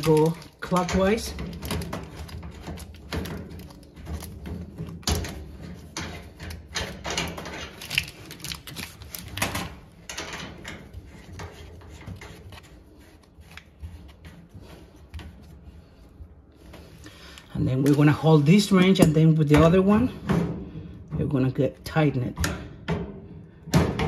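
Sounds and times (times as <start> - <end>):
metal parts clicking and scraping: 0.0 - 12.8.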